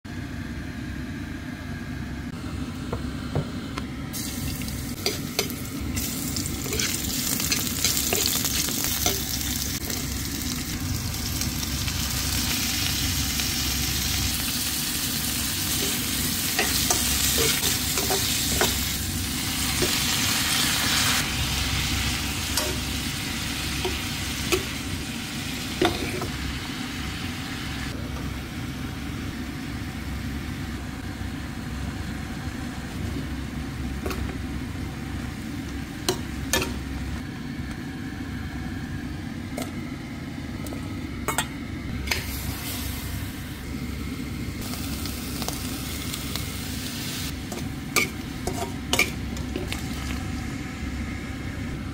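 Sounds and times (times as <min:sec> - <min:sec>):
steady low hum: 0:00.1 - 0:51.9
food sizzling in a wok: 0:04.1 - 0:31.0, 0:41.9 - 0:51.2.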